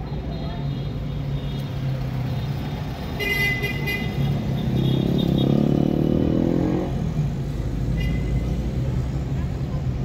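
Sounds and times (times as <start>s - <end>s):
city street traffic: 0.0s - 10.0s
engine revving: 4.6s - 7.3s.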